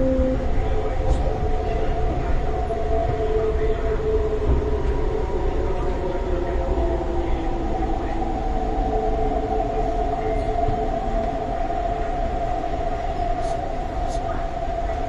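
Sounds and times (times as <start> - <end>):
train traction motor whine: 0.0 - 7.4
wheels rumbling on rail: 0.0 - 15.0.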